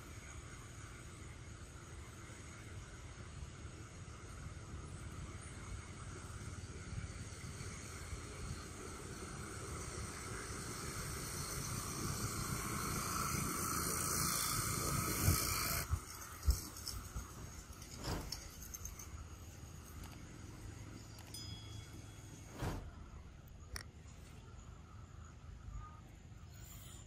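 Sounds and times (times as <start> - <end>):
outdoor background hiss: 0.0 - 27.0.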